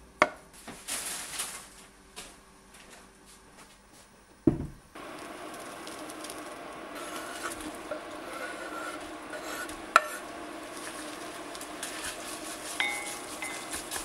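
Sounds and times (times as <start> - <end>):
heavy pot thump on cooktop: 4.5 - 4.8
steady hiss: 4.9 - 14.0
knife scraping cutting board: 7.0 - 11.2, 11.8 - 14.0.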